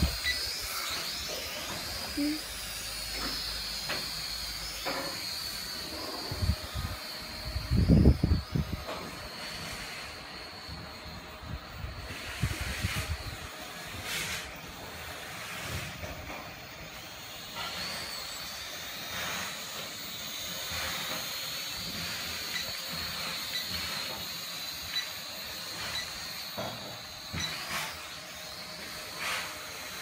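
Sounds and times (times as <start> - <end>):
wind noise on microphone: 0.0 - 0.4, 6.3 - 8.9, 11.4 - 13.5
toy drone motors whining: 0.0 - 30.0.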